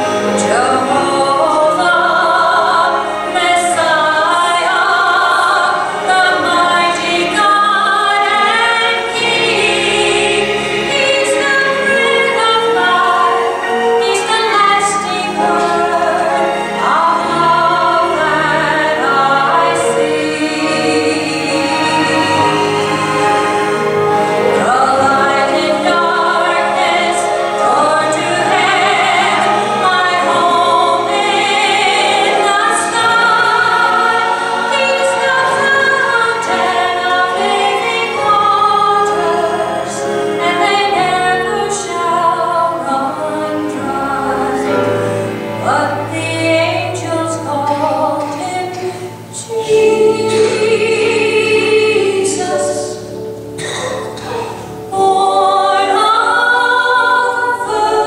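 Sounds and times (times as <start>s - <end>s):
instrumental accompaniment: 0.0s - 58.0s
woman singing gospel song: 24.5s - 44.7s, 45.6s - 54.3s, 54.9s - 58.0s.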